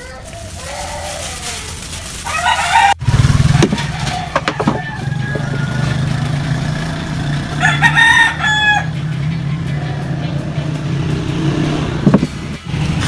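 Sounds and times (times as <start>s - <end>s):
rooster crowing: 2.2s - 9.1s
engine running with low hum: 3.0s - 13.0s
knocks: 3.6s - 5.7s.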